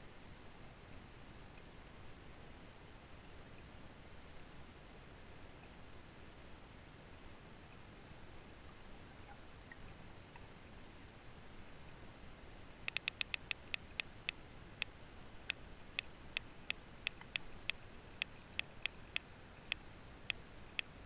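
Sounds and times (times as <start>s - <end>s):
faint hiss: 0.0s - 21.0s
sharp underwater clicks: 12.8s - 21.0s.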